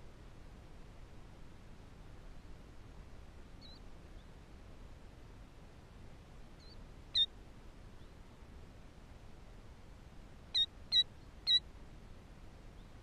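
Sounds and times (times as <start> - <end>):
killdeer high peeps: 3.6 - 4.3, 6.6 - 7.3, 10.5 - 11.7.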